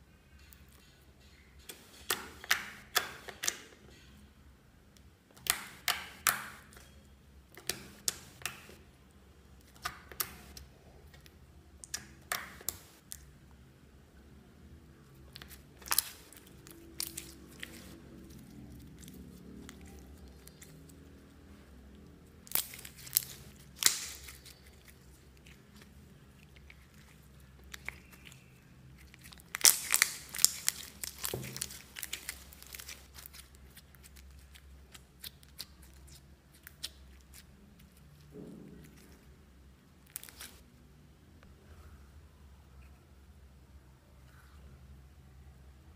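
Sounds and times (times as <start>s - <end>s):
slime crackling pops: 22.5s - 24.3s, 29.5s - 33.2s.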